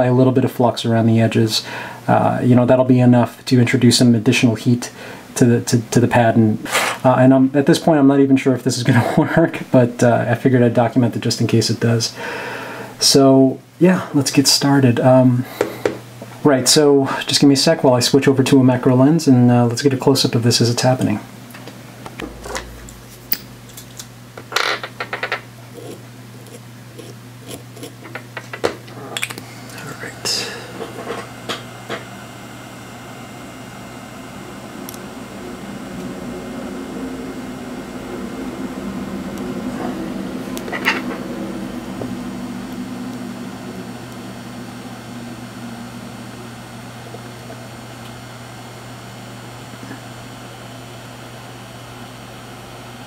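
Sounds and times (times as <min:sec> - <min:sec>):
steady low hum: 0:00.0 - 0:53.0
hot-air gun blowing: 0:06.6 - 0:07.0, 0:15.4 - 0:16.0, 0:29.4 - 0:32.0.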